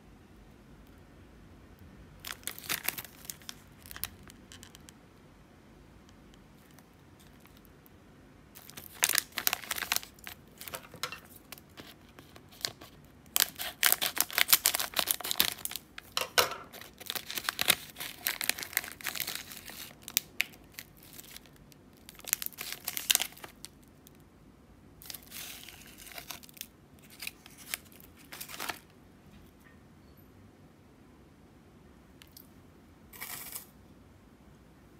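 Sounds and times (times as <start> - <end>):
plastic wrapper crinkling and tearing: 2.2 - 5.0, 6.6 - 7.7, 8.6 - 24.2, 25.0 - 28.9.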